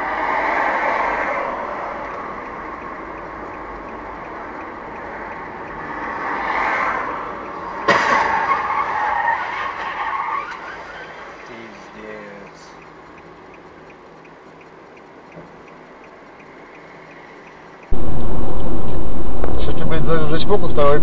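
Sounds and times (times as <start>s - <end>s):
road and tyre noise: 0.0s - 21.0s
loud car crash: 7.8s - 10.9s.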